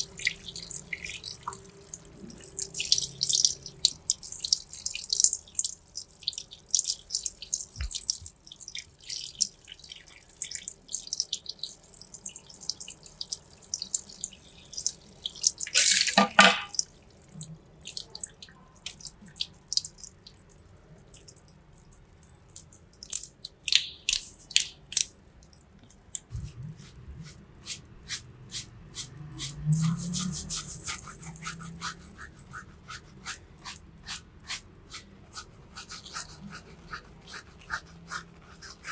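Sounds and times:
wet clicking of hands on skin: 19.8s - 26.3s
fingers scrubbing lather in hair: 21.8s - 38.9s.

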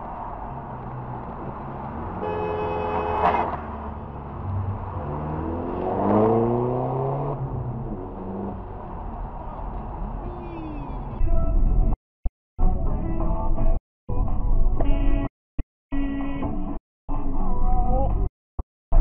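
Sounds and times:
road and engine rumble: 0.0s - 12.0s
engine revving up: 3.2s - 10.2s.

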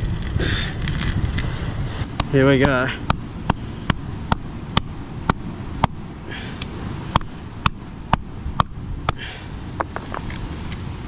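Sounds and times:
rock knocking on coconut: 9.8s - 10.3s.

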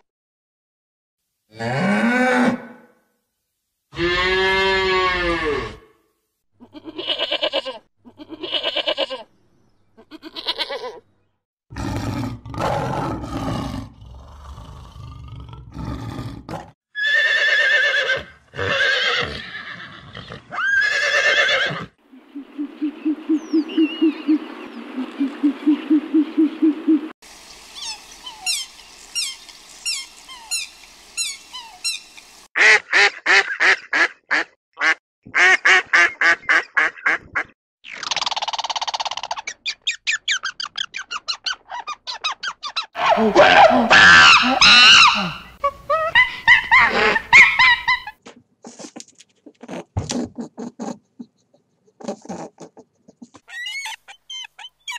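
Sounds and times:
horse whinnying: 16.9s - 21.9s
other animal calls: 40.2s - 48.2s, 53.4s - 54.9s.

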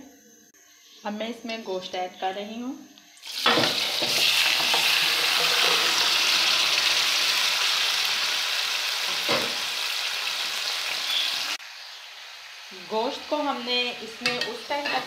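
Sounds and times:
meat sizzling in hot oil: 3.2s - 15.0s.

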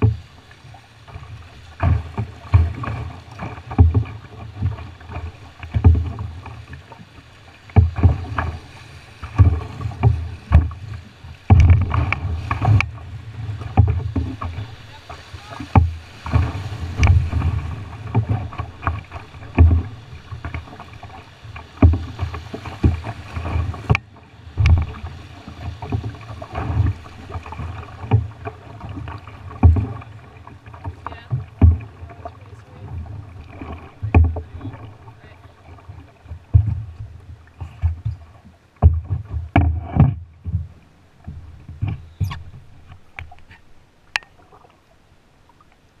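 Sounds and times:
whitewater rushing: 0.0s - 36.3s
sharp knocks: 11.5s - 12.0s
low thumps: 11.5s - 13.0s, 31.4s - 32.1s.

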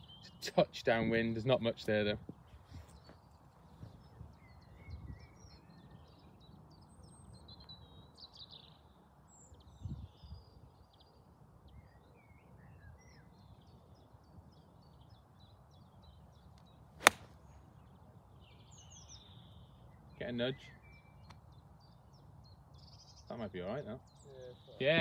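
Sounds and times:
birds chirping: 0.0s - 25.0s
golf club striking ball: 17.0s - 17.3s.

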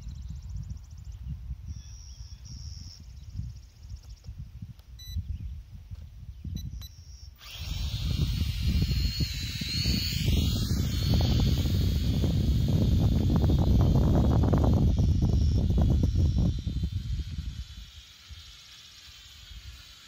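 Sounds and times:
wind on microphone: 0.0s - 18.7s
drone propellers buzzing: 6.6s - 20.0s.

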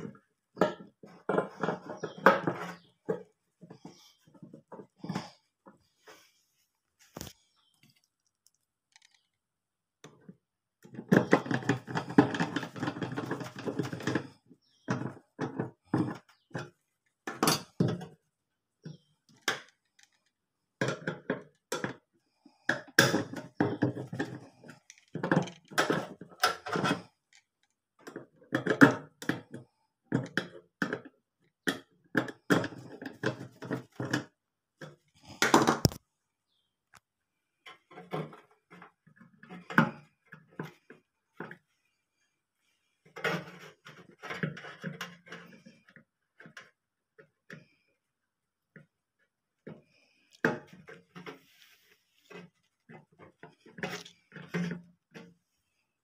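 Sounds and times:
metal parts clicking and knocking: 22.9s - 29.5s.

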